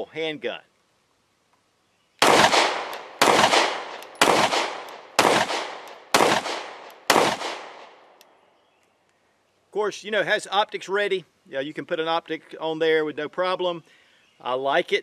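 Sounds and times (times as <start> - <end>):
pistol shots with echo: 2.2 - 8.0.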